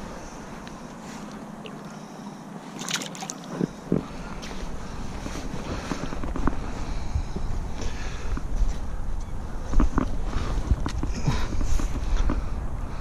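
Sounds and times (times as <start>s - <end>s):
water splashing: 2.7s - 3.6s.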